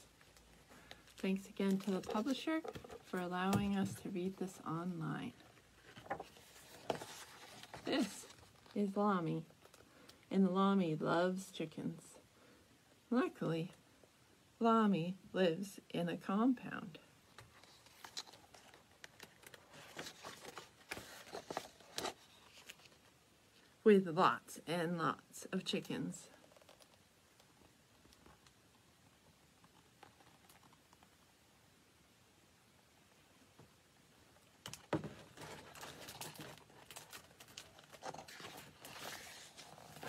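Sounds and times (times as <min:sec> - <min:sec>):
book pages turning: 0:00.3 - 0:04.5, 0:05.7 - 0:08.9, 0:17.4 - 0:23.1, 0:34.7 - 0:40.0.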